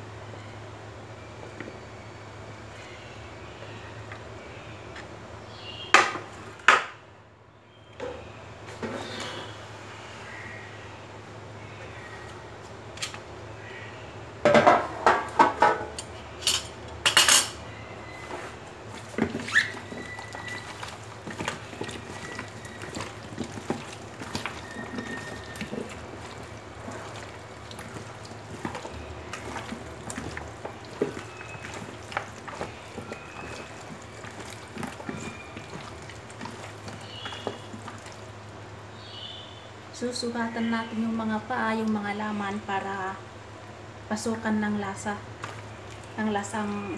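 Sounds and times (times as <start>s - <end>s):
wet squelches of chicken: 18.9s - 38.6s, 45.3s - 46.8s.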